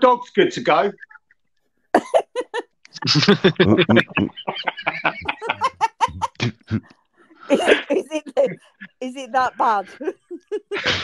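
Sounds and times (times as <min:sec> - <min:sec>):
person laughing: 0:02.0 - 0:06.9, 0:07.5 - 0:08.6, 0:09.2 - 0:11.0.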